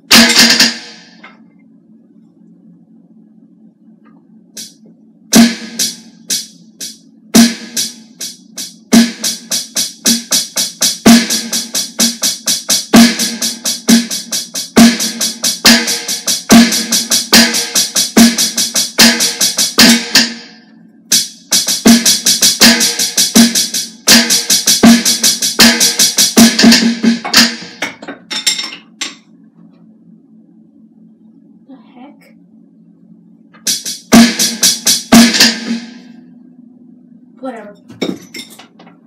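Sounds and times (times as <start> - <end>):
electronic drum kit playing: 0.0 - 1.3, 4.5 - 28.0, 33.5 - 36.3
low steady hum: 0.0 - 9.8, 19.1 - 21.6, 27.3 - 39.0.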